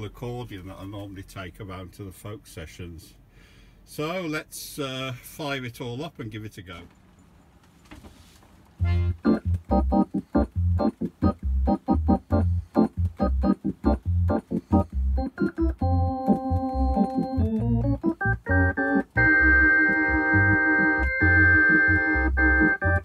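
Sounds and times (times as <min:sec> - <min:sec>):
bass line: 0:08.8 - 0:23.0
organ chords: 0:08.8 - 0:23.0.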